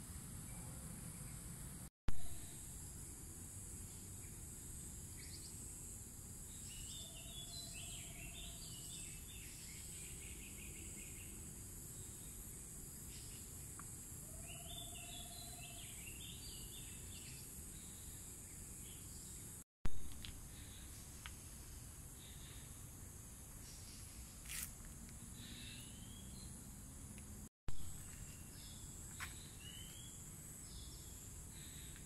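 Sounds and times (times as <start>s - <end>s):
songbird singing: 3.7s - 19.6s, 23.4s - 32.0s.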